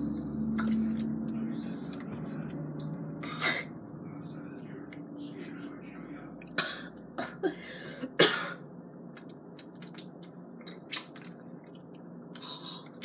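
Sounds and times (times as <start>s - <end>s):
person sputtering and coughing: 3.2s - 3.7s, 6.5s - 8.6s.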